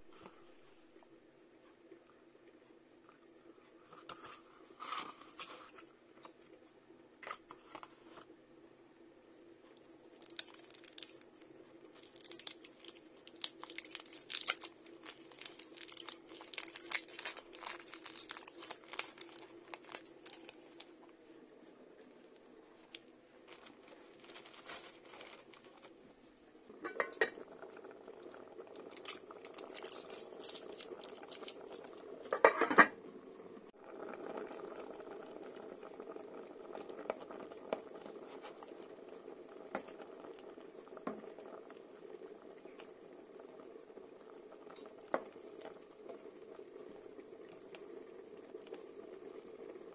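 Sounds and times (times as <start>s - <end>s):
sauce bubbling in a pot: 9.7s - 23.0s, 26.7s - 49.9s
foil wrapper crinkling: 10.1s - 20.9s, 22.8s - 26.0s, 28.8s - 31.9s.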